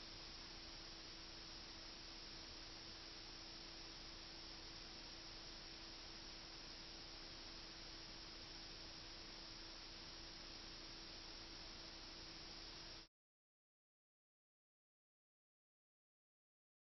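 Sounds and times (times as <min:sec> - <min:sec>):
background hiss: 0:00.0 - 0:13.1
faint hum: 0:00.0 - 0:13.1.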